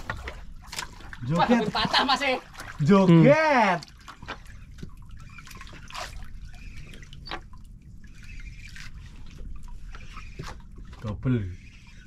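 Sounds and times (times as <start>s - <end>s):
small splashes and drips: 0.0s - 11.9s
low steady water wash: 0.0s - 12.0s
water lapping against boat hull: 0.0s - 12.0s.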